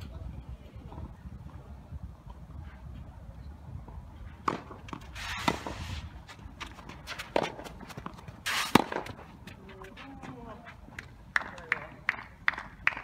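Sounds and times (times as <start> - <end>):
racket hitting tennis ball: 4.4 - 10.4.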